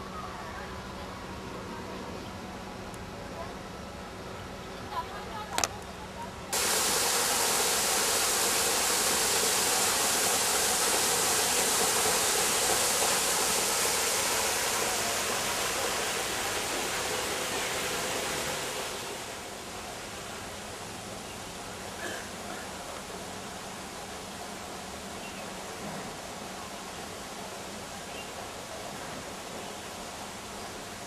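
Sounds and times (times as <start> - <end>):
water running over rocks: 6.6 - 21.8.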